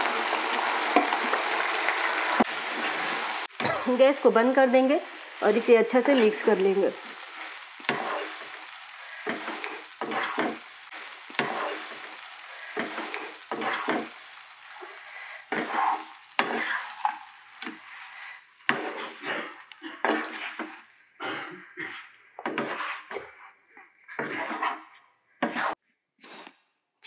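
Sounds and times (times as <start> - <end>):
light sizzle from pan: 0.0 - 19.2
wooden spatula scraping wok: 0.0 - 20.9, 21.8 - 23.4, 24.1 - 26.5.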